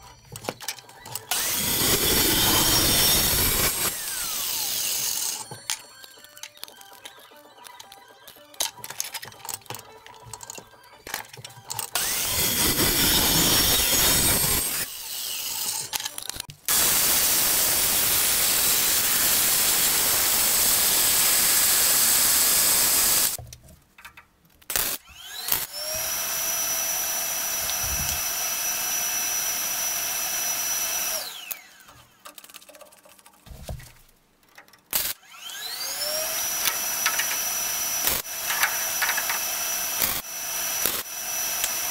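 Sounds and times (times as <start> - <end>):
power tool whining: 0.0 - 8.5, 9.4 - 23.4, 25.0 - 32.2, 35.0 - 41.9
chop saw cutting steel tubing: 1.2 - 6.1, 11.8 - 23.4, 24.7 - 32.4, 34.9 - 41.9
vise and tubing clanks: 38.4 - 39.5.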